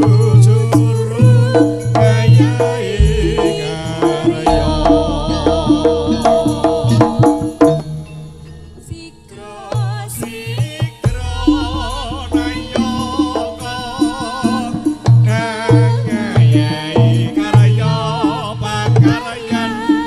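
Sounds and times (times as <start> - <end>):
wavering gamelan melody: 0.0 - 10.1, 11.0 - 20.0
hand drum strokes: 1.9 - 7.8
deep sustained gong tones: 3.0 - 6.7.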